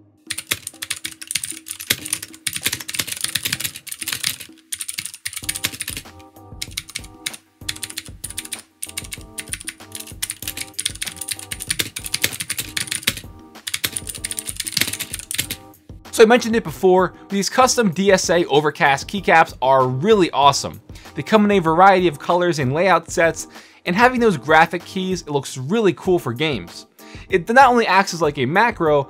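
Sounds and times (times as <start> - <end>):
mechanical keyboard typing clicks: 0.3 - 15.6.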